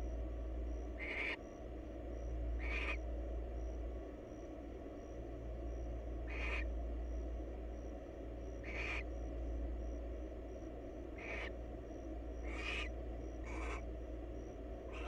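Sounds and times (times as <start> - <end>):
steady low hum: 0.0 - 15.0
owl rasping hiss calls: 1.0 - 1.4, 2.6 - 3.0, 6.2 - 6.7, 8.6 - 9.1, 11.2 - 11.6, 12.4 - 13.9.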